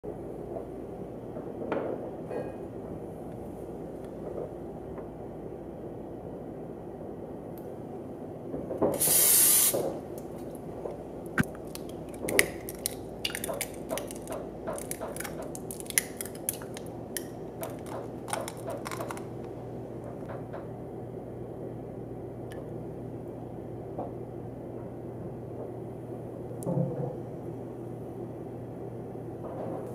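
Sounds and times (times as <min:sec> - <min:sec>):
aerosol cooking spray hiss: 0:09.0 - 0:09.8.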